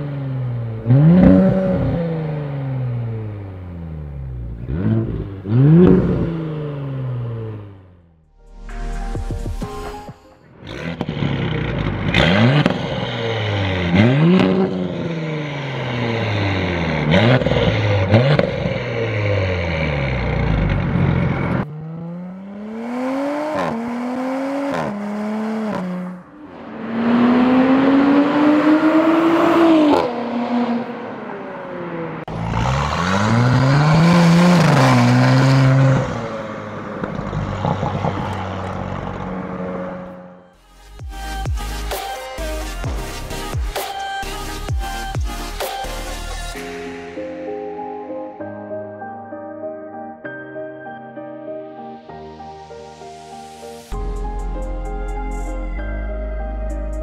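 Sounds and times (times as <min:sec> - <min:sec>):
car accelerating hard: 0:00.0 - 0:07.9, 0:10.6 - 0:40.4
car exhaust revving: 0:00.0 - 0:08.7, 0:10.6 - 0:40.4.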